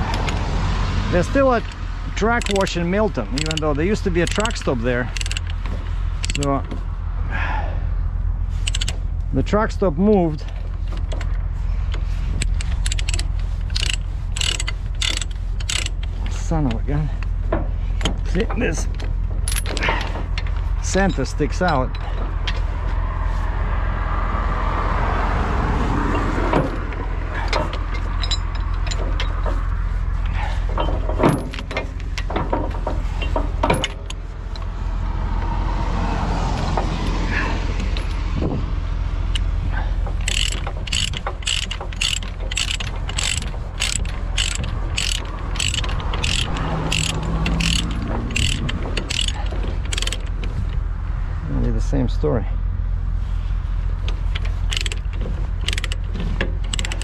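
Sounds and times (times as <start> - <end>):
truck engine and road rumble: 0.0 - 57.0
clicks and rattles: 1.4 - 6.8, 8.6 - 9.3, 10.2 - 23.0, 26.1 - 34.7, 36.6 - 38.3, 39.2 - 50.9, 54.0 - 57.0
regular clicking: 1.5 - 6.8, 8.6 - 9.3, 10.5 - 22.7, 39.2 - 50.8, 54.0 - 57.0.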